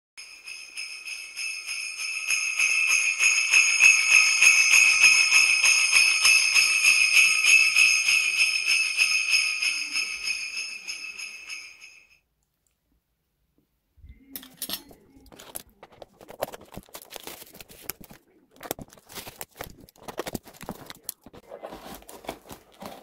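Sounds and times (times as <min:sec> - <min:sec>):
small bells jingling: 0:00.2 - 0:12.2.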